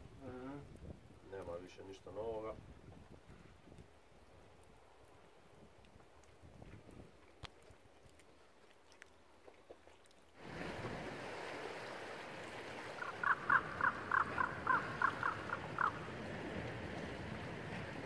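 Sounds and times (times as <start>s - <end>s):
outdoor wind noise: 10.4s - 18.0s
repeated animal call: 13.0s - 16.0s.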